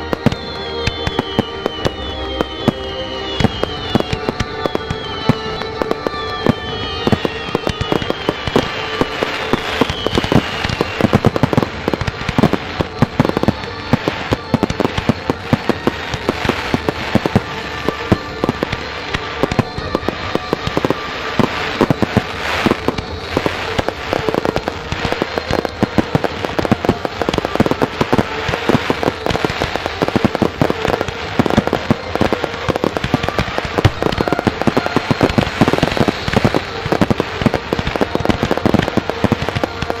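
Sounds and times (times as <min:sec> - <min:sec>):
fireworks bursting with bangs: 0:00.0 - 0:40.0
fireworks crackling: 0:00.0 - 0:40.0.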